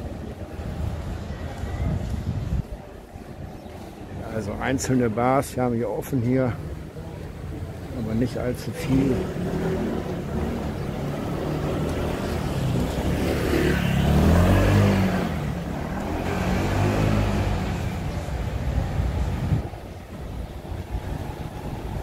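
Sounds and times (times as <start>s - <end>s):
vehicle engine passing by: 8.8s - 18.6s.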